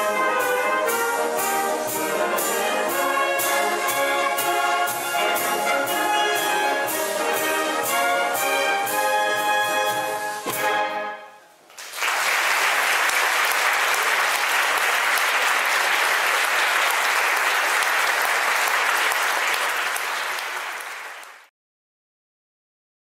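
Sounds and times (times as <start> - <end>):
audience applauding: 11.7 - 21.5.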